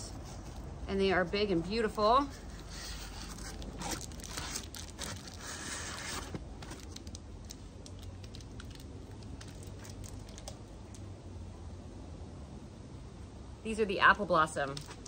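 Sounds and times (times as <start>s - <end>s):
steady low hum: 0.0s - 15.0s
packing material rustling: 2.3s - 10.6s.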